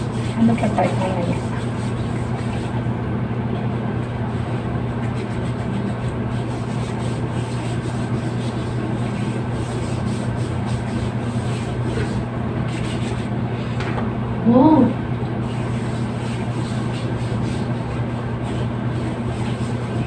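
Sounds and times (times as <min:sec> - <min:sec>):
lotion rubbing on skin: 0:00.0 - 0:02.9, 0:04.2 - 0:13.8, 0:15.4 - 0:20.0
steady low hum: 0:00.0 - 0:20.0.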